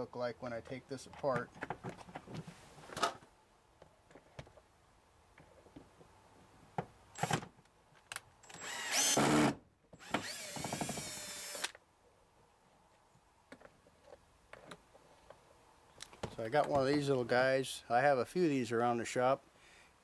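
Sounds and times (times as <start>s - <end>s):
cordless drill motor whine: 8.4s - 11.8s.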